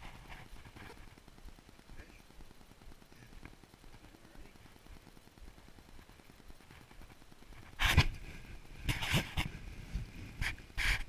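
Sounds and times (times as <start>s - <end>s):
camera rubbing against clothing: 0.0s - 1.3s, 6.0s - 11.0s.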